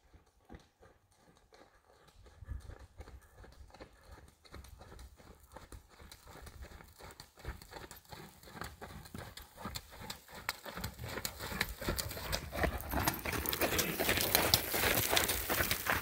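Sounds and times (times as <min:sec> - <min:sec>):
horse hoofbeats on sand: 0:00.0 - 0:16.0.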